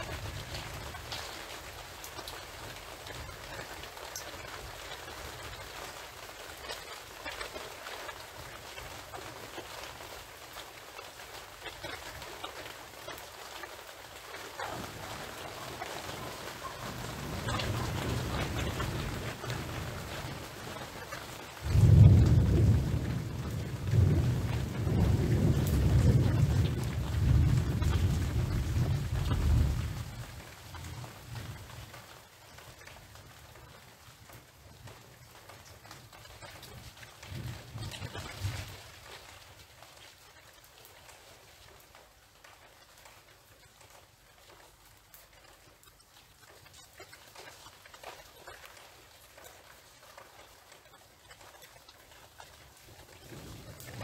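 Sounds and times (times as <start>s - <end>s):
steady rain falling: 0.0s - 54.0s
thunder rumbling: 14.6s - 31.7s.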